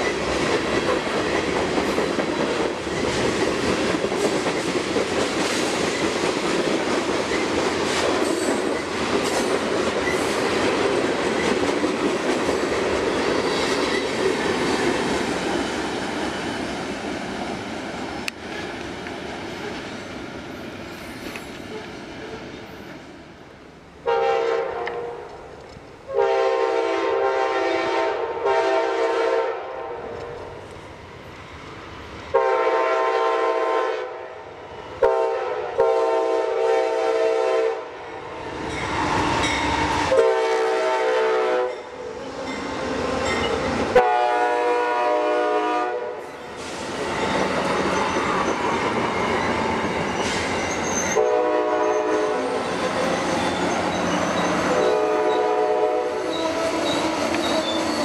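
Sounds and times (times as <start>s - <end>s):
train rolling past: 0.0s - 58.0s
locomotive air horn blasts: 24.0s - 25.3s, 26.1s - 30.2s, 32.3s - 34.3s, 35.0s - 37.9s, 40.1s - 41.9s, 44.0s - 46.3s, 51.2s - 52.5s, 54.7s - 57.1s.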